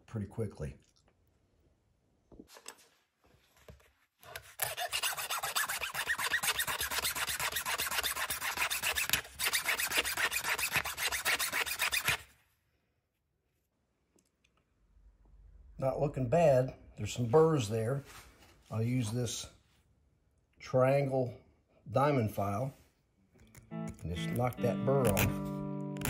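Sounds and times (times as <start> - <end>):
metal fret rasping on hand file: 4.6 - 12.2.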